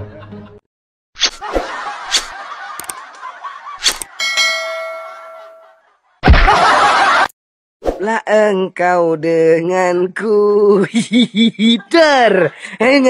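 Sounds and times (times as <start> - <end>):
sharp clicks: 2.1 - 3.2
bell-like ding: 4.2 - 5.8.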